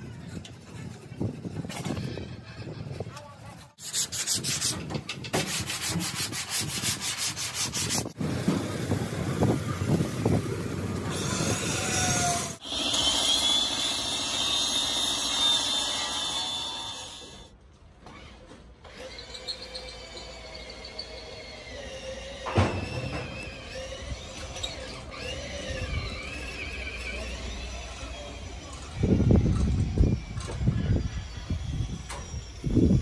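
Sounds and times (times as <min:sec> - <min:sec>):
sandpaper rubbing on sheet metal: 0:03.6 - 0:08.2.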